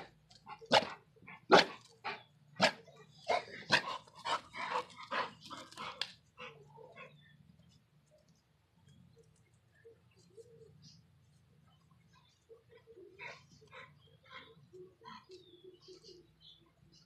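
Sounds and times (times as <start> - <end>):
large dogs barking: 0.0 - 7.2.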